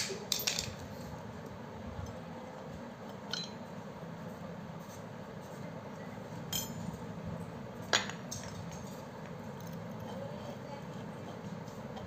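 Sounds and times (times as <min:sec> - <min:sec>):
metal parts clinking: 0:00.0 - 0:00.8
low background noise: 0:00.0 - 0:12.0.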